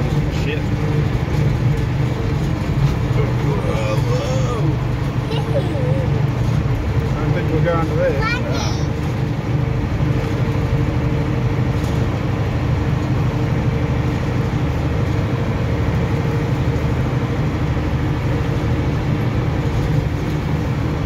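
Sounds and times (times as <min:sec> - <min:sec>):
road and drivetrain noise: 0:00.0 - 0:21.0
truck engine low hum: 0:00.0 - 0:21.0.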